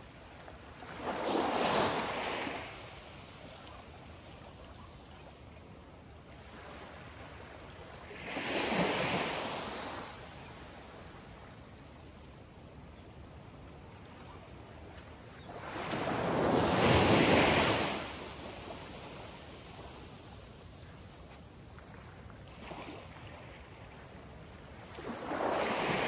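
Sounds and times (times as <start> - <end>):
low water hiss: 9.2 - 26.0
small waves lapping: 13.4 - 26.0.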